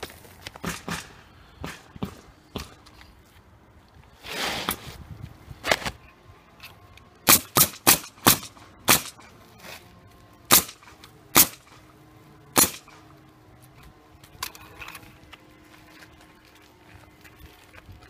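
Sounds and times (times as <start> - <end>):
nail gun firing: 0.6 - 2.8, 7.2 - 9.3, 10.5 - 11.8, 12.6 - 13.0.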